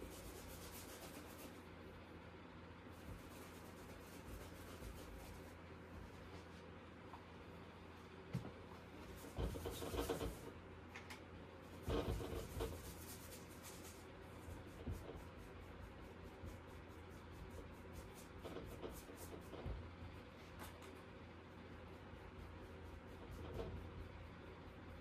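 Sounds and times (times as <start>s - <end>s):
brush strokes on canvas: 0.0s - 1.7s, 2.9s - 6.8s, 11.6s - 25.0s
paintbrush scrubbing on palette: 0.0s - 1.7s, 3.0s - 6.7s, 9.0s - 10.5s, 11.6s - 25.0s.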